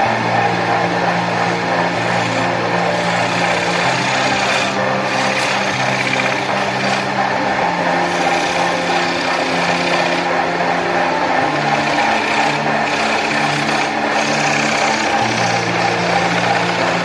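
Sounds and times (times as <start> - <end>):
turning tool cutting wood: 0.0 - 17.0
wood lathe running: 0.0 - 17.0.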